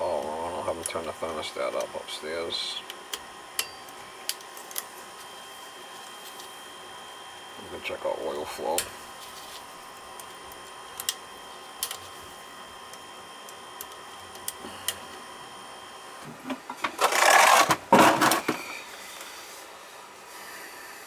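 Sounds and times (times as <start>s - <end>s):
faint steady hum: 0.0s - 21.0s
camera rustling scrapes: 17.0s - 18.5s.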